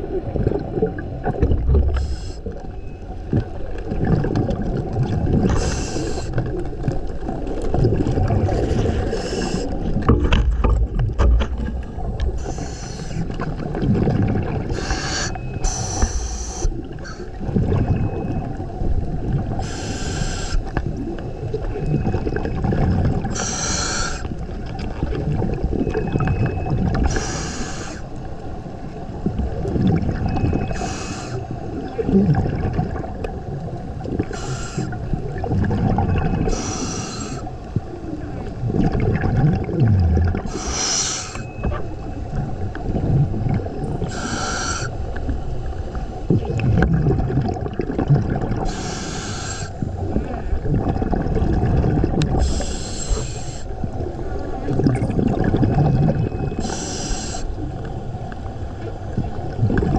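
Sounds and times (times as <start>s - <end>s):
exhaled bubbles underwater: 0.0s - 59.9s.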